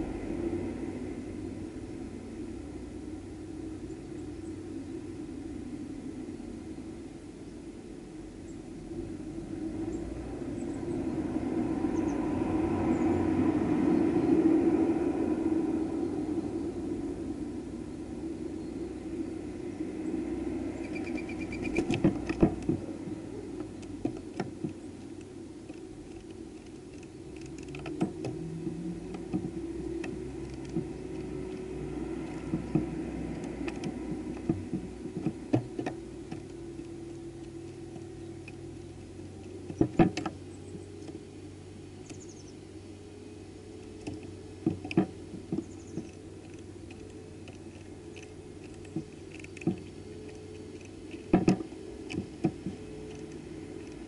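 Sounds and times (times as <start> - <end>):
steady low hum: 0.0 - 54.0
faint high bird chirps: 20.0 - 21.9, 42.0 - 42.7
birds tapping on glass: 20.8 - 22.8.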